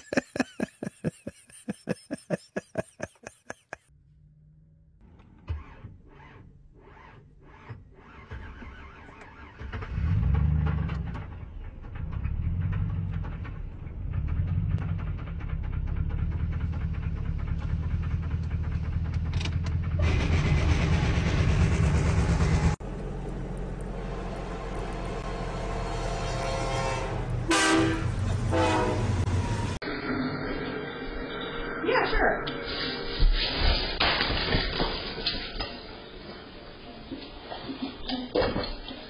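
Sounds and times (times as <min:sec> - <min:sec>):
vehicle rumble: 0:09.8 - 0:27.5.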